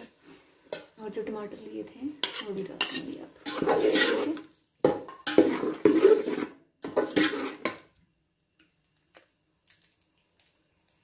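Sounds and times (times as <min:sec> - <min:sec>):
metal spatula scraping steel pot: 0:02.2 - 0:07.9.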